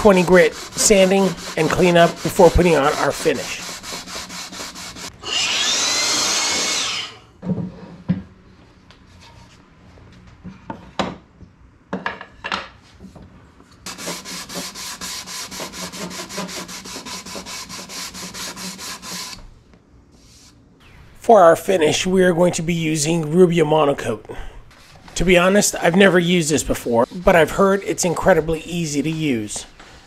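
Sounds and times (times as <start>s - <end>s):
sanding block rubbing wood: 0.0s - 5.1s, 13.9s - 19.4s, 25.3s - 29.4s.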